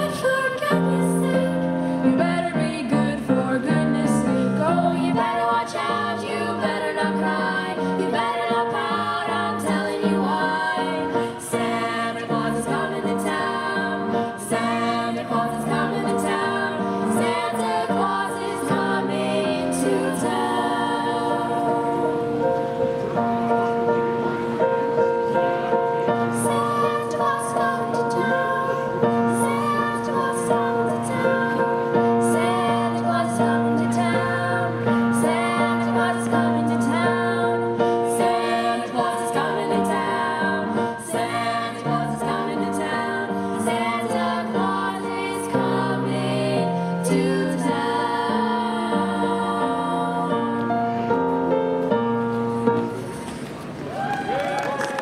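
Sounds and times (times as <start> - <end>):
choir of girls singing: 0.0 - 22.9, 26.0 - 51.5.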